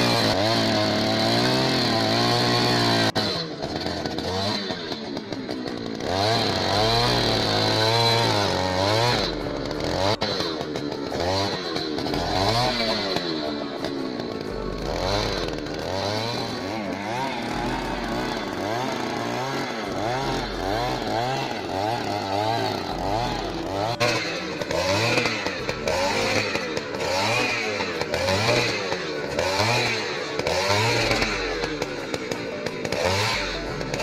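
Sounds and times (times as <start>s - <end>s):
earth auger engine running: 0.0s - 34.0s
background music with steady beat: 5.9s - 34.0s.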